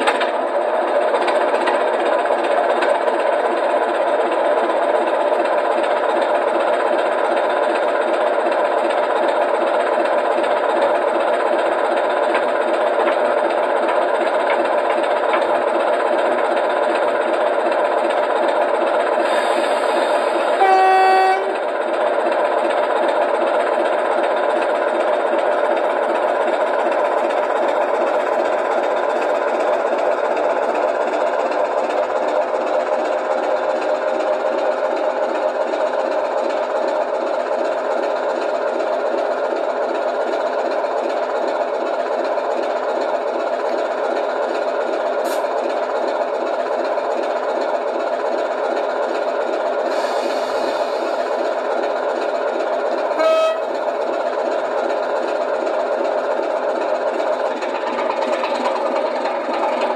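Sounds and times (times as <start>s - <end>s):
diesel engine idling: 0.1s - 59.9s
locomotive horn blast: 20.6s - 21.6s, 53.2s - 53.7s.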